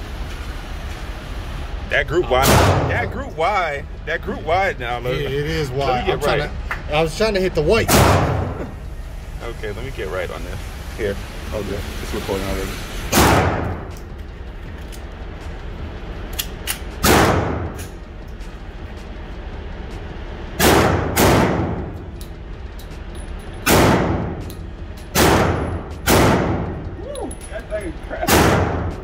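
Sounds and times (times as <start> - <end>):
pistol shots echoing indoors: 2.4 - 2.9, 7.9 - 8.6, 13.1 - 13.8, 16.3 - 17.9, 20.6 - 22.0, 23.6 - 26.8, 28.2 - 29.0.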